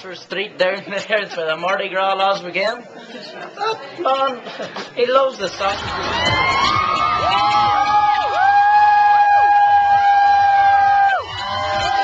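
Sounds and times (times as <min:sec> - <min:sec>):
crowd cheering and whooping: 0:05.6 - 0:12.0.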